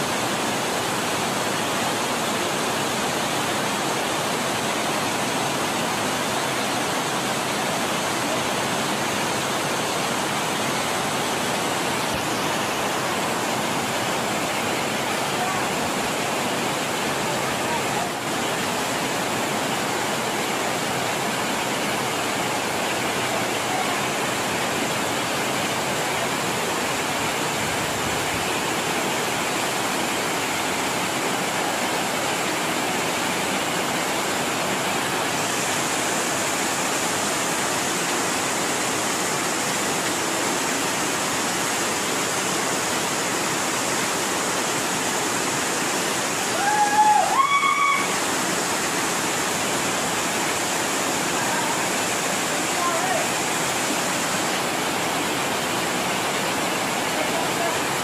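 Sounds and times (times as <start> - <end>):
waterfall over rocks: 0.0 - 58.0
high-pitched call: 46.6 - 48.2.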